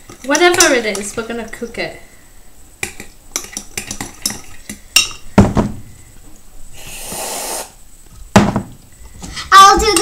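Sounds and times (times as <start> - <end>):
hissing noise: 6.7 - 7.9.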